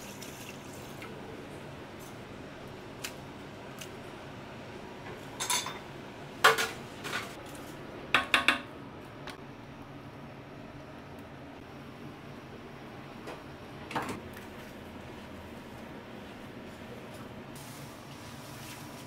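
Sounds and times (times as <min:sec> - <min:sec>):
dishes and utensils clinking: 0:05.4 - 0:07.4.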